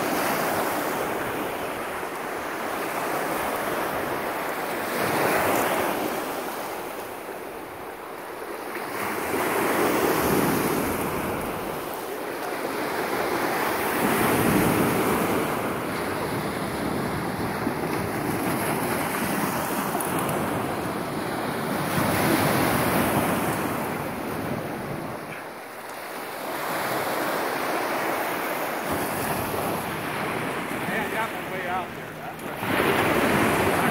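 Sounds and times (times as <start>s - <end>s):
waves washing up a sandy shore: 0.0s - 33.9s
wind buffeting the microphone: 13.8s - 25.4s.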